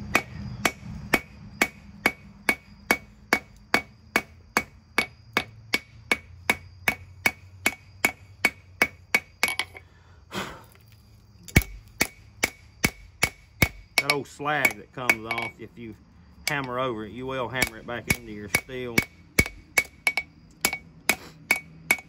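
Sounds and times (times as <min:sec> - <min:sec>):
hammer blows ringing anvil: 0:11.6 - 0:15.6.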